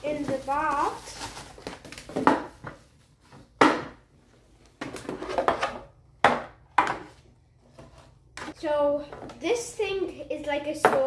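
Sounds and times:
plastic rustling and clatter: 0.0 - 3.6.

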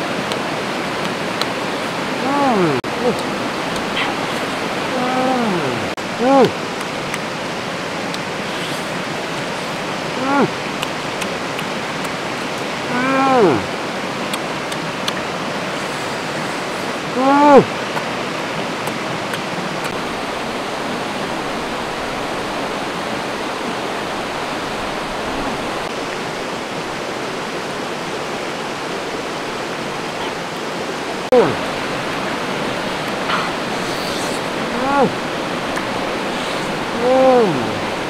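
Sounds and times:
stream rushing over rocks: 0.0 - 38.0
man exclaiming: 2.2 - 3.2, 4.9 - 6.6, 10.2 - 10.5, 12.9 - 13.7, 17.2 - 17.7, 31.3 - 31.6, 34.7 - 35.2, 37.0 - 37.9.

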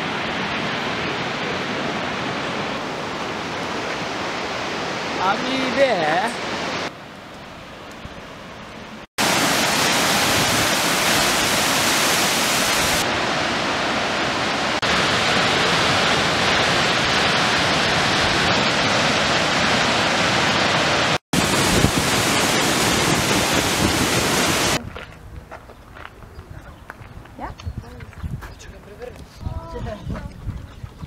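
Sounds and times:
waterfall rushing: 0.0 - 6.9, 9.2 - 24.8.

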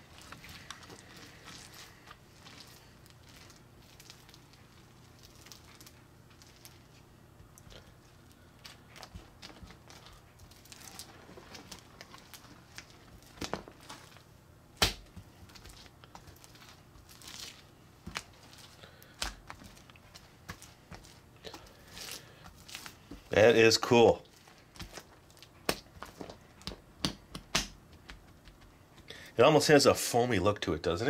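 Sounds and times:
sticky slime crackling and tearing: 0.0 - 7.8, 8.6 - 14.2, 14.8 - 23.1.

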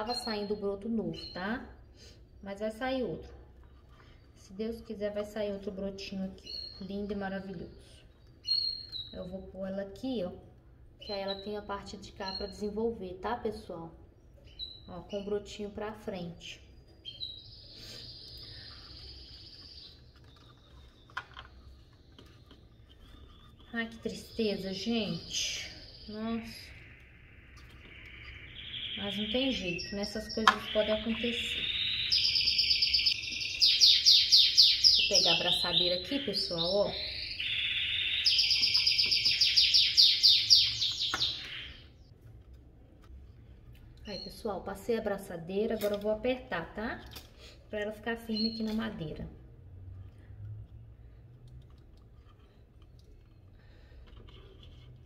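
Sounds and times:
bird chirping rapidly: 24.0 - 42.1.

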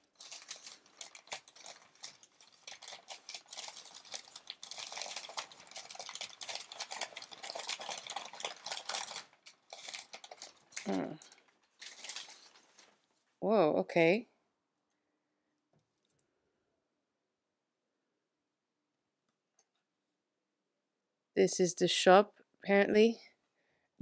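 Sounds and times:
paper crinkling and rustling: 0.0 - 13.3.

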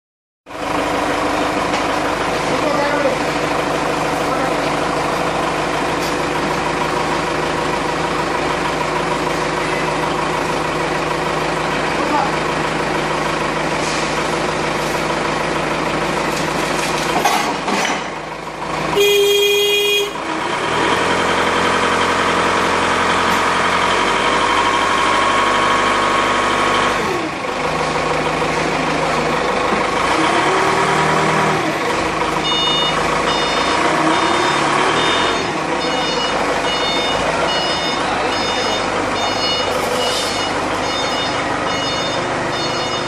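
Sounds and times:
forklift engine running: 0.5 - 43.0
forklift horn: 18.9 - 20.3, 32.4 - 43.0
reversing beeper: 32.4 - 43.0.

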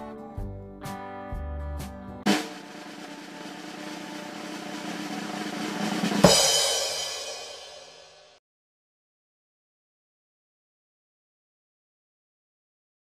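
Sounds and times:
guitar background music: 0.0 - 2.2
cymbal crash: 2.3 - 8.4
snare drum roll: 2.3 - 8.4.

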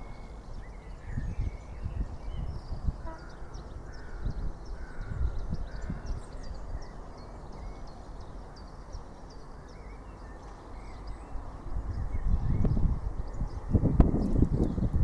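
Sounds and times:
low gusty rumble: 0.0 - 7.0, 10.8 - 15.0
small birds chirping: 0.0 - 15.0.

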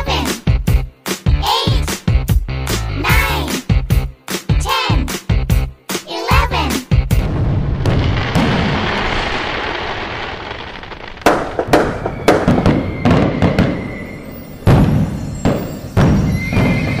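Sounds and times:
fireworks crackling: 7.1 - 16.4
fireworks bangs: 7.1 - 17.0.

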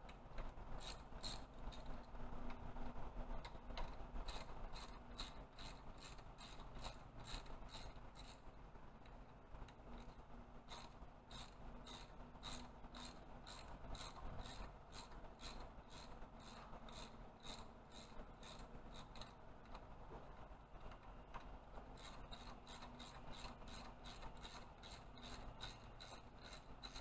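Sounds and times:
hand ratchet clicking: 0.8 - 2.0, 3.4 - 8.4, 10.0 - 19.8, 22.0 - 27.0.

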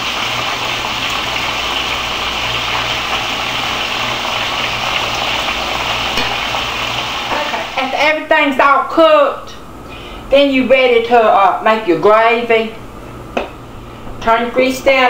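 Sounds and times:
steaks sizzling in grease: 0.0 - 8.0.

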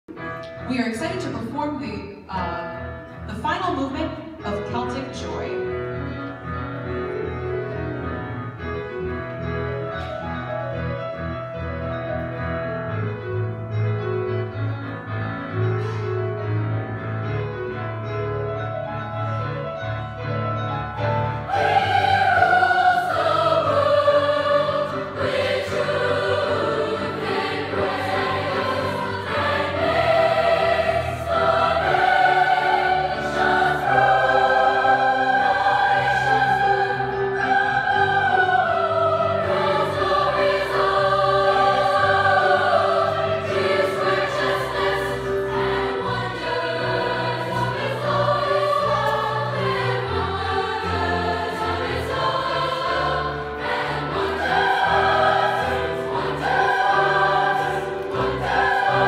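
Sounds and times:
youth choir singing: 21.3 - 59.0.

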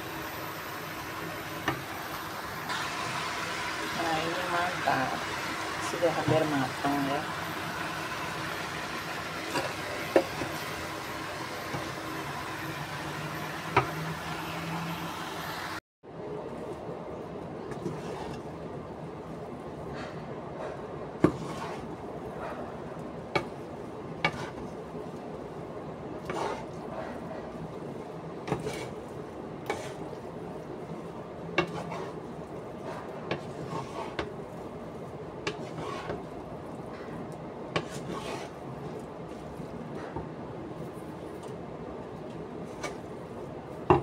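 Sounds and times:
spatula scraping a frying pan: 4.2 - 14.3, 17.7 - 18.5, 20.6 - 22.0, 24.2 - 24.8, 26.2 - 27.5, 28.4 - 30.2, 31.6 - 34.7, 35.4 - 36.4, 37.7 - 40.2, 42.6 - 43.1.

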